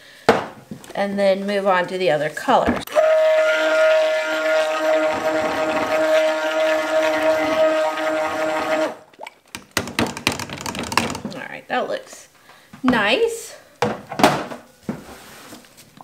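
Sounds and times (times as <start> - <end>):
stick blender motor whine: 2.9 - 9.0.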